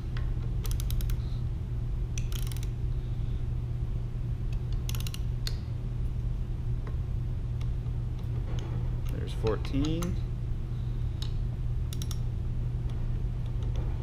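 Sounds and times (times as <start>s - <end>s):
low hum: 0.0s - 14.0s
torque wrench ratchet clicking: 0.6s - 1.2s, 2.2s - 2.7s, 4.7s - 5.6s, 11.9s - 12.2s.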